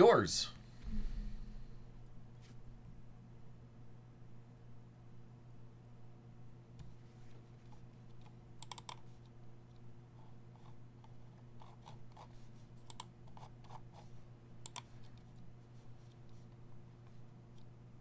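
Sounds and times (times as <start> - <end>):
low electrical hum: 0.0 - 18.0
computer keyboard typing: 8.2 - 9.1, 11.6 - 14.0, 14.6 - 14.9.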